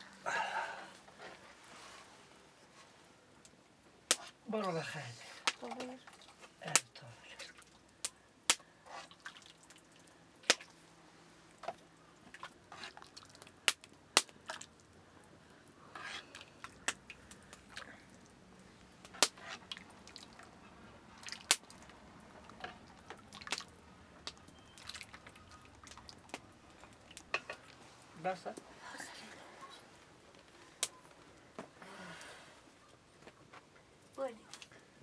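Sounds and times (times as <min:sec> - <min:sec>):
liquid splashing and dripping: 0:05.5 - 0:06.8, 0:07.4 - 0:10.8, 0:11.6 - 0:15.0, 0:19.1 - 0:27.8.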